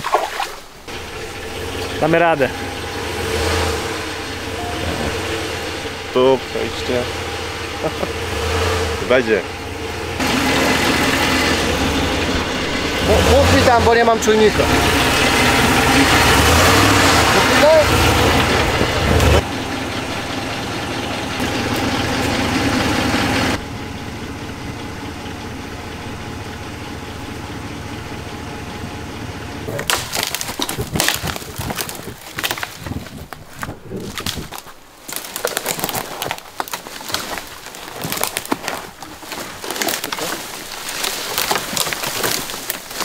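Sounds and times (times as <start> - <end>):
truck engine idling: 0.7 - 43.0
twigs and brush snapping: 29.7 - 43.0.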